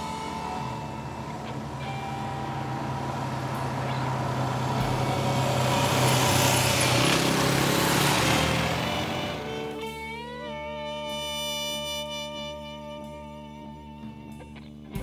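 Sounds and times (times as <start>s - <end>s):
motorcycles passing on dirt road: 0.0s - 11.4s.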